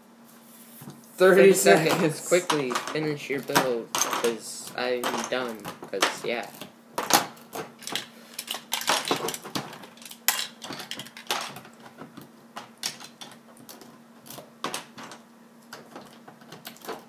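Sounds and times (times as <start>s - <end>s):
plastic bricks clattering: 7.8s - 13.4s.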